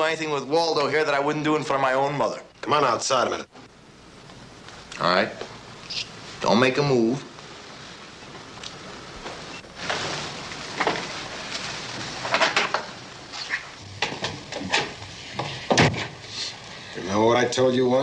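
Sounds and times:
rustling: 5.8 - 17.0
knocks and clatters: 12.1 - 12.9, 13.9 - 16.2.

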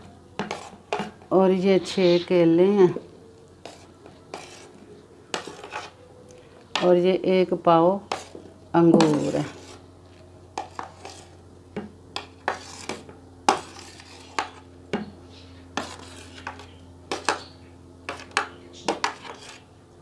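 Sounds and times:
spoon scraping glass bowl: 3.6 - 4.7, 5.3 - 5.9, 10.6 - 11.4, 12.5 - 14.7, 15.8 - 17.5, 18.1 - 19.6.

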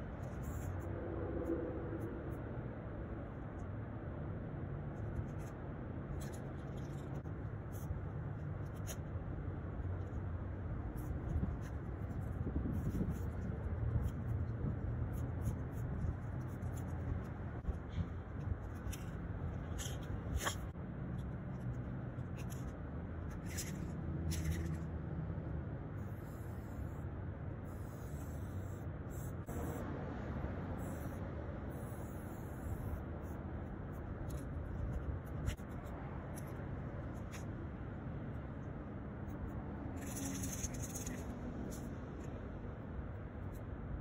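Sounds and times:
low background rumble: 0.0 - 44.0
spray paint can hissing: 26.0 - 26.9, 27.6 - 29.8, 30.8 - 33.4.

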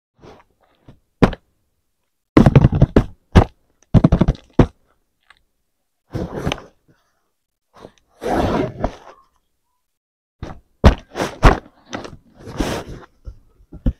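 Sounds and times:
cardboard scraping rustle: 11.0 - 13.2.

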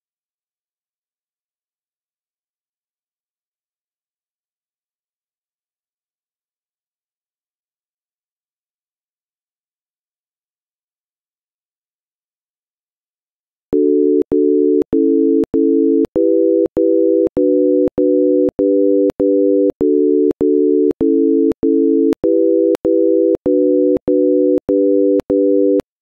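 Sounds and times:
electronic tone chords: 13.8 - 25.8.

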